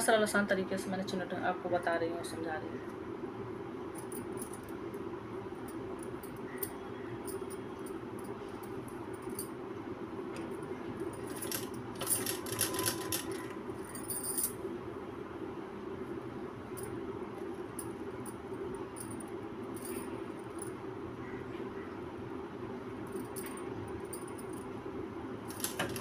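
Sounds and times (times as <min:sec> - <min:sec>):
steady low hum: 0:00.0 - 0:26.0
metallic clinking: 0:11.0 - 0:14.6, 0:23.1 - 0:24.6.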